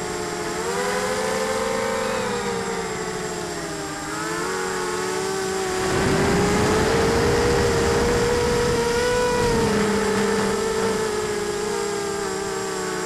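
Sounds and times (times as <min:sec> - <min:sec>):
drone motors whining: 0:00.0 - 0:13.0
rushing noise: 0:05.7 - 0:12.2.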